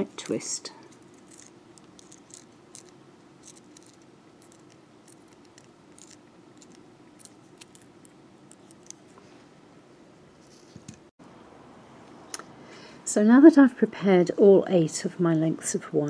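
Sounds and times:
wire clicking and scraping: 0.2 - 9.2.

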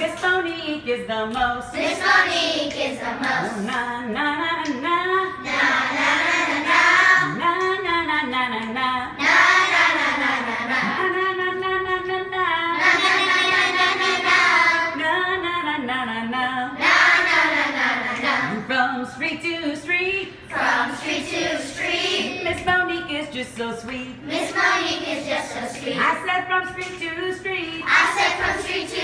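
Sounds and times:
children singing together: 5.4 - 7.4, 12.8 - 15.0, 20.5 - 22.6, 27.9 - 29.0.

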